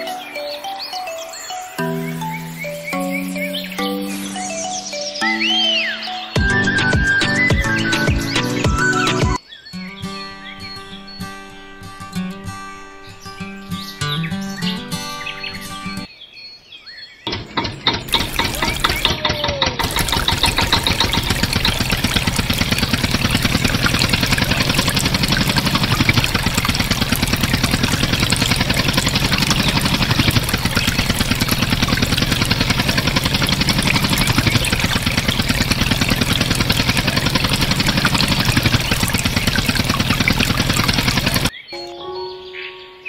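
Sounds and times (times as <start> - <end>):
water jet splashing into trough: 17.3 - 41.5
water pump running: 17.3 - 41.5.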